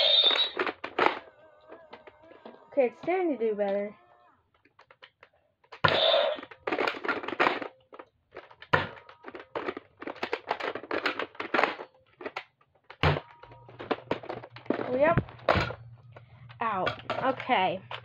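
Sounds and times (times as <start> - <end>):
toy blaster clicks and rattles: 0.0 - 2.2, 4.6 - 15.1.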